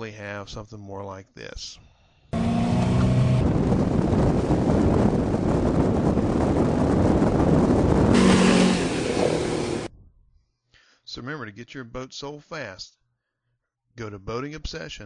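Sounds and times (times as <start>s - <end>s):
motorboat engine running: 2.4s - 9.9s
wind noise on microphone: 2.4s - 10.2s.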